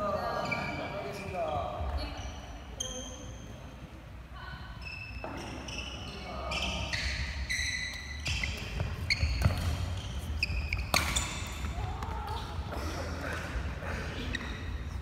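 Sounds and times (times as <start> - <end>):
shoes squeaking on wooden floor: 4.8 - 12.5
racket hitting shuttlecock: 10.7 - 12.1.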